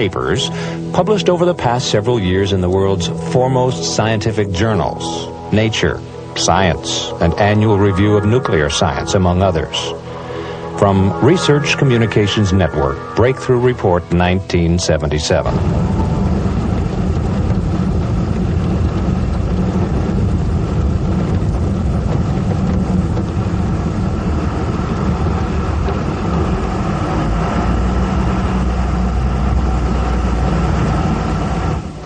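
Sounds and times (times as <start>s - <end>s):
faint high tone: 6.4s - 17.1s
heavy machinery rumbling: 15.4s - 32.0s.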